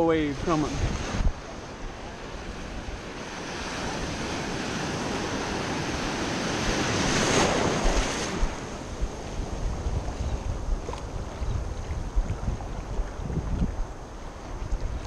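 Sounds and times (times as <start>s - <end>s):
wave crashing: 0.0s - 11.1s.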